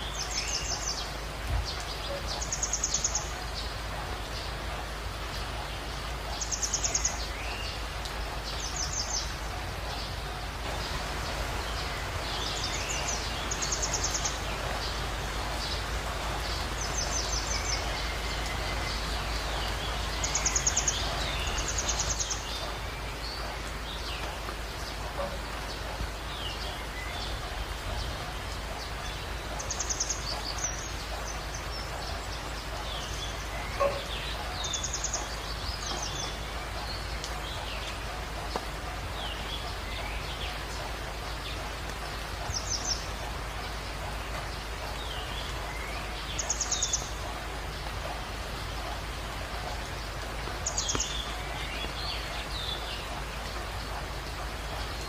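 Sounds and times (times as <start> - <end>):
heavy rain hiss: 0.0 - 55.0.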